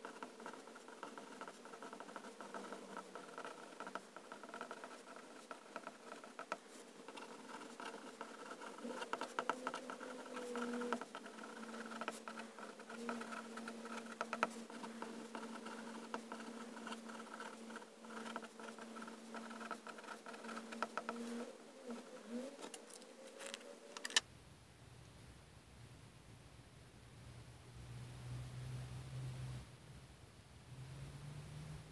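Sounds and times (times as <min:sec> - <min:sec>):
fountain pen scratching on paper: 0:00.0 - 0:24.2
faint steady hum: 0:00.0 - 0:31.9.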